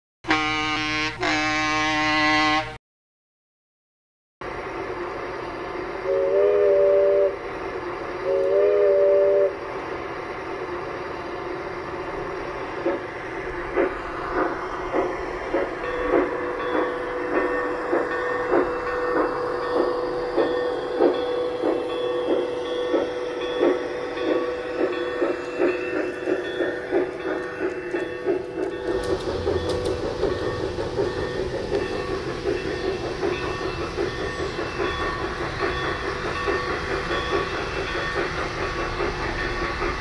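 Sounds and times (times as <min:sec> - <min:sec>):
model train whistle blasts: 0:00.3 - 0:02.8, 0:06.0 - 0:07.4, 0:08.2 - 0:09.6
steam locomotive chuffing: 0:04.4 - 0:40.0
steady tone: 0:11.0 - 0:40.0.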